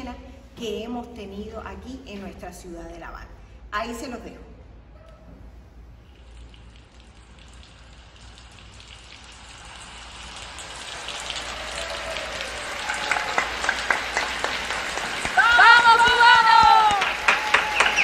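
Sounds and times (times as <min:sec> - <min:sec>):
crowd applauding: 0:10.4 - 0:18.0.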